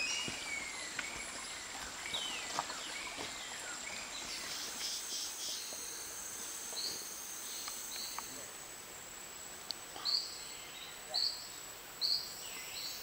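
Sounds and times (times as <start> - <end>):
bird calls: 0.0 - 8.4
insects droning: 0.0 - 13.0.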